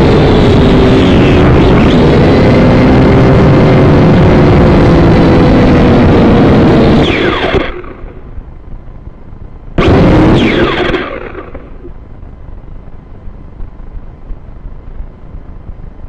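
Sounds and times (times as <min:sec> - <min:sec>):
drone motors whining: 0:00.0 - 0:08.4, 0:09.8 - 0:12.1.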